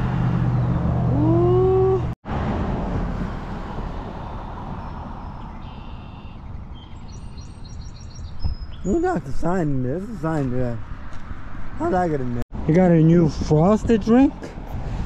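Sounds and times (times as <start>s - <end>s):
vehicle engine hum with whine: 0.0s - 6.4s
traffic rushing: 0.0s - 15.0s.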